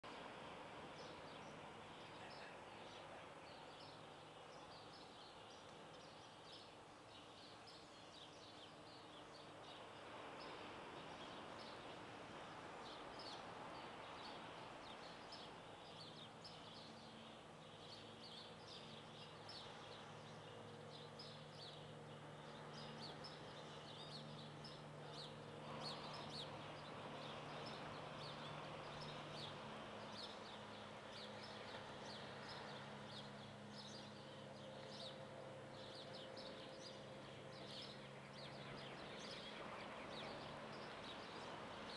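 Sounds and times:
low steady hum: 0.0 - 41.9
small birds chirping: 0.0 - 41.9
soft background wash: 0.0 - 41.9.

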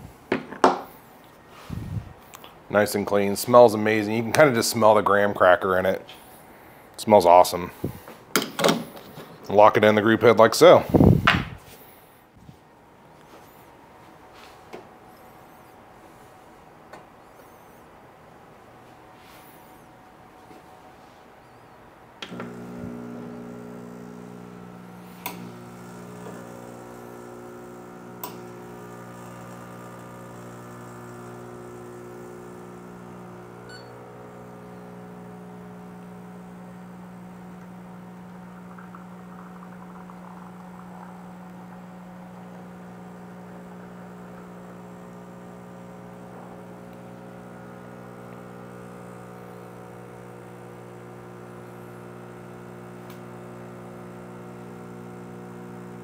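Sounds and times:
espresso machine pump humming: 22.2 - 56.0.

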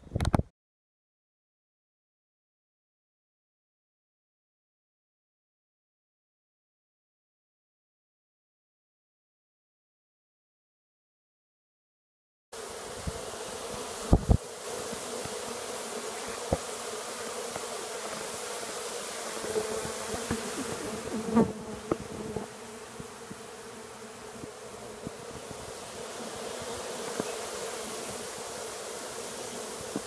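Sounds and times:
bees buzzing: 12.6 - 30.0.

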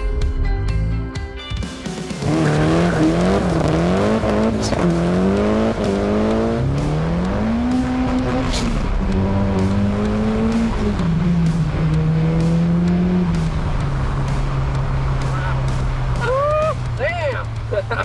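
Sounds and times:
car engine accelerating and shifting: 2.1 - 18.0.

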